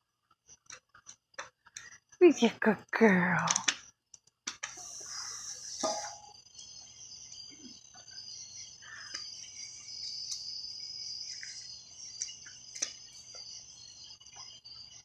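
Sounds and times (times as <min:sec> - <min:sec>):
sharp clicks and pops: 0:03.4 - 0:04.8
night insects chirping: 0:04.7 - 0:15.0.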